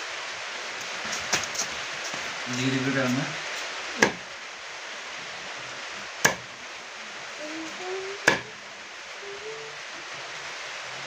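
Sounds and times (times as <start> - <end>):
steady hiss: 0.0 - 11.0
blade chopping on wooden block: 4.0 - 4.2, 6.2 - 6.4.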